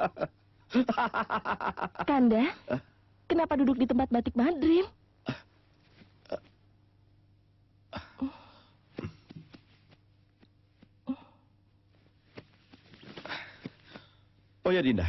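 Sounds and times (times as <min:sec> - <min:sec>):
breathy sigh: 0:07.9 - 0:08.8, 0:11.1 - 0:11.5.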